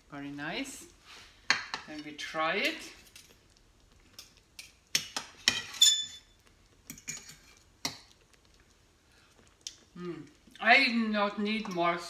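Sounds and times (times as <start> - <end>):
knife and fork scraping a plate: 5.4 - 6.2, 6.9 - 7.6.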